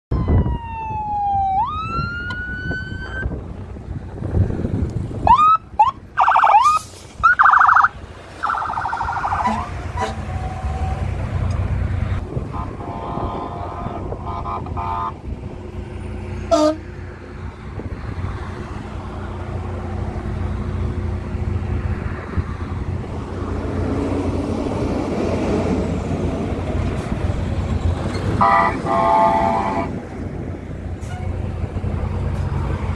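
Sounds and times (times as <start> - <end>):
fire engine siren wailing: 0.1 - 3.4, 5.2 - 15.3, 15.9 - 16.8, 28.4 - 30.1
truck engine rumble: 0.1 - 32.9
horn blasts: 9.1 - 11.0, 12.4 - 15.2, 16.5 - 16.9, 28.4 - 30.0.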